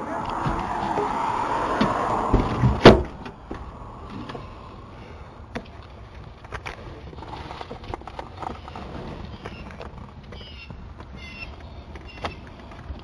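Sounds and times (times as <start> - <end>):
low rumble: 0.0 - 7.2.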